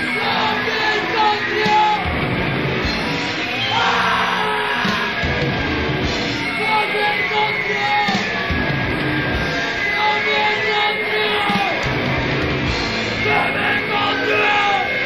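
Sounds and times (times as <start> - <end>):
vocals: 0.0 - 2.2, 3.0 - 5.5, 6.4 - 8.5, 9.6 - 11.9, 13.0 - 15.0
bass: 0.0 - 15.0
distorted guitars: 0.0 - 15.0
drums: 0.0 - 15.0
high squealing tones: 3.2 - 5.4.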